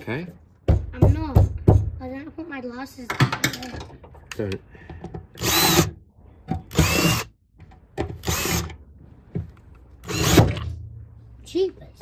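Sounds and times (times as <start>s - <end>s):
cordless drill whine: 5.4s - 5.9s, 6.7s - 7.3s, 8.2s - 8.7s, 10.1s - 10.4s.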